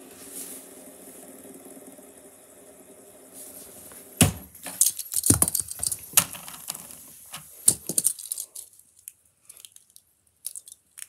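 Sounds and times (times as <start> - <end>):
plastic clacks and rattles: 4.6 - 11.0.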